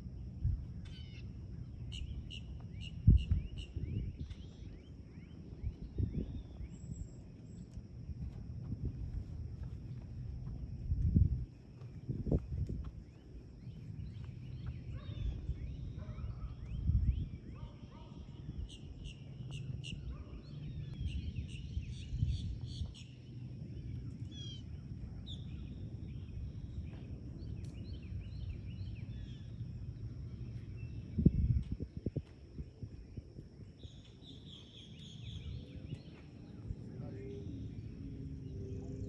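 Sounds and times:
steady low rumble: 0.0s - 33.9s, 35.0s - 39.0s
birds chirping and whistling: 0.8s - 7.6s, 13.0s - 24.6s, 33.8s - 39.0s.

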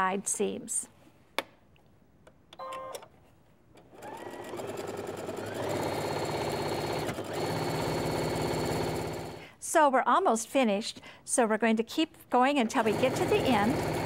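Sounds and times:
sewing machine stitching: 3.8s - 9.4s, 12.7s - 14.0s.

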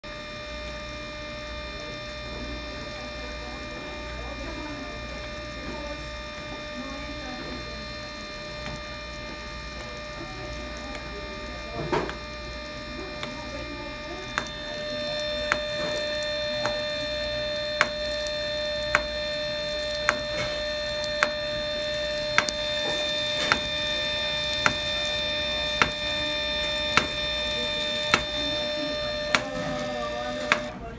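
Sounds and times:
steady mechanical hum: 0.0s - 30.9s
printer clicking sharply: 17.8s - 30.8s.

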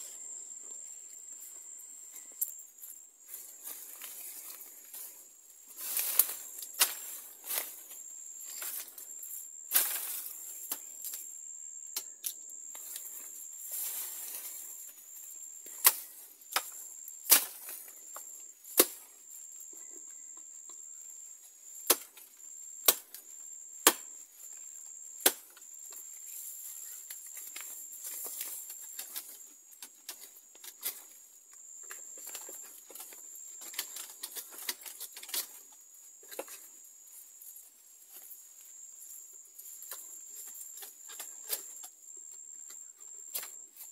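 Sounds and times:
leaves rustling: 2.2s - 11.2s, 12.8s - 18.2s
blade chopping bamboo: 21.9s - 22.1s, 23.8s - 24.1s, 25.2s - 25.5s.

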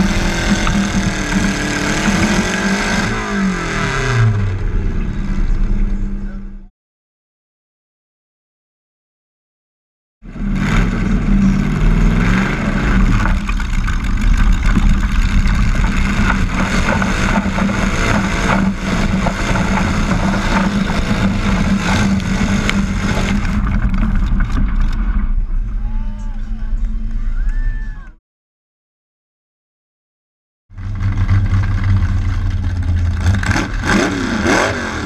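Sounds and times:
tractor engine at full throttle: 0.0s - 6.7s, 10.3s - 27.3s, 30.7s - 35.0s.

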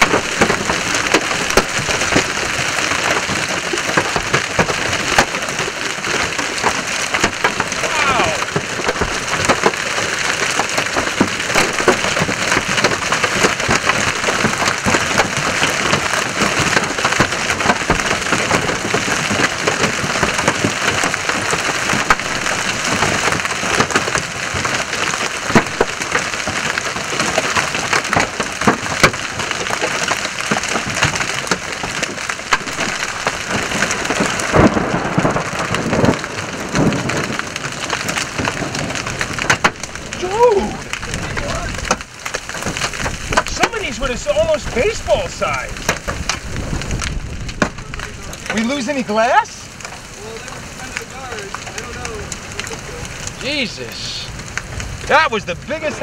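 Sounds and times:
heavier hail knocks: 0.0s - 53.8s
hail and heavy rain pelting cars: 0.0s - 56.0s.

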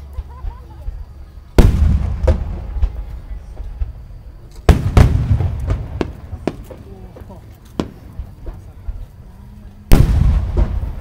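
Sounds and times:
firework booms: 1.6s - 9.0s, 9.9s - 11.0s
small firework bangs: 1.6s - 9.3s, 9.9s - 11.0s.

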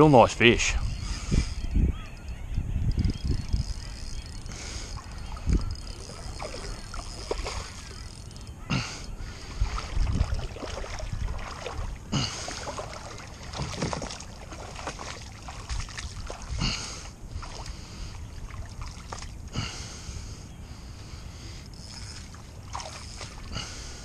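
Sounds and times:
wind rumble on microphone: 0.4s - 23.6s
water splashing and sloshing: 4.6s - 19.9s, 21.8s - 24.0s.

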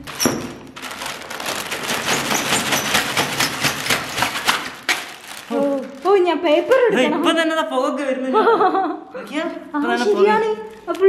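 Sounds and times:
plastic bag crinkling: 0.0s - 6.9s, 10.2s - 11.0s.

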